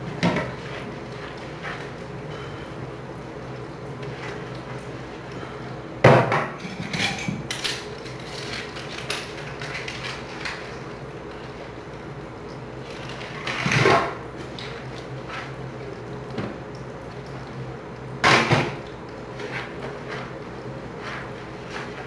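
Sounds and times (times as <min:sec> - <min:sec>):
dishes knocking and clattering: 0:06.1 - 0:07.7
sponge scrubbing: 0:19.3 - 0:22.0.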